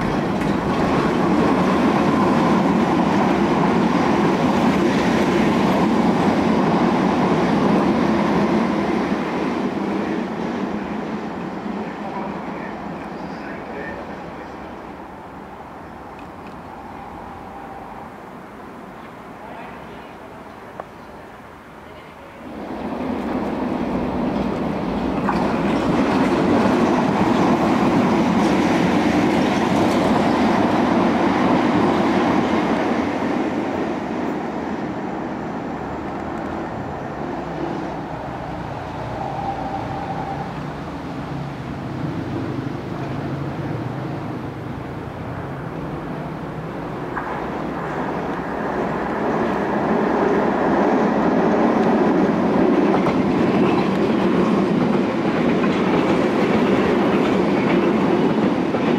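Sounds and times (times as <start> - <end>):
rail-joint clatter: 0.0 - 1.7, 23.1 - 30.5, 51.8 - 58.9
train wheels rumbling on rail: 0.0 - 58.9.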